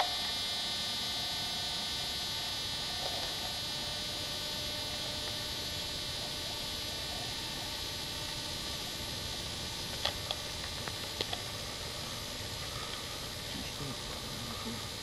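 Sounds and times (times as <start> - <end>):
camcorder hiss and hum: 0.0 - 15.0.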